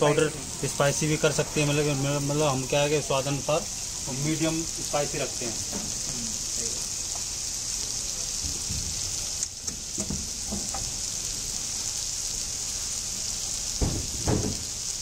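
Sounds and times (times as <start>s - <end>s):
vegetables sizzling in oil: 0.0s - 15.0s
dull thumps: 13.8s - 14.7s.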